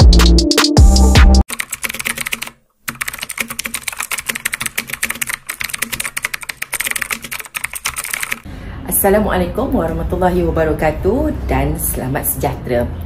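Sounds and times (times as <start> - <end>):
fast keyboard typing: 1.4 - 8.5.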